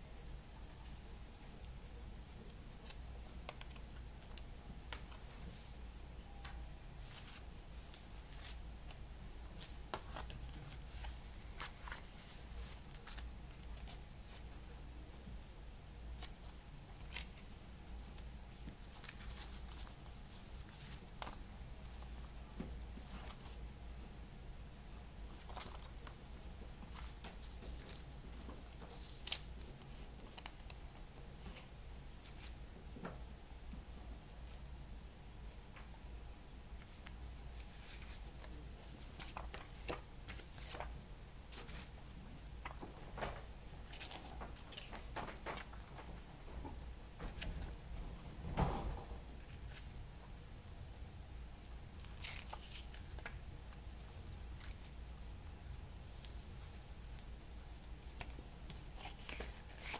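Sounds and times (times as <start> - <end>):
faint low hum: 0.0 - 59.9
paper rustling: 7.0 - 14.5, 16.2 - 22.2, 25.3 - 30.8, 36.8 - 41.9, 43.9 - 46.2, 52.0 - 53.4, 57.8 - 59.9.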